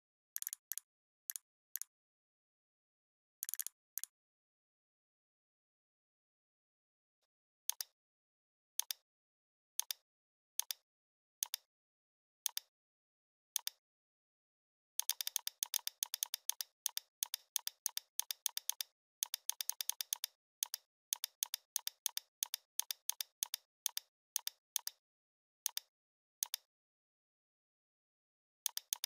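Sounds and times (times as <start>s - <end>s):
computer mouse clicks: 0.4s - 1.9s, 3.4s - 4.1s, 7.7s - 8.0s, 8.8s - 9.0s, 9.8s - 10.0s, 10.6s - 10.8s, 11.4s - 11.7s, 12.5s - 12.7s, 15.0s - 25.0s, 25.6s - 26.7s, 28.6s - 29.0s.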